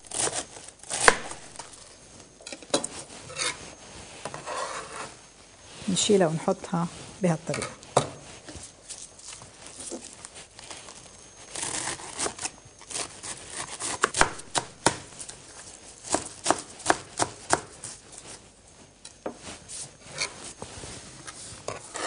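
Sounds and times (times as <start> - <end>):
knife slicing cabbage: 0.0 - 1.7, 11.5 - 15.0, 16.0 - 18.0.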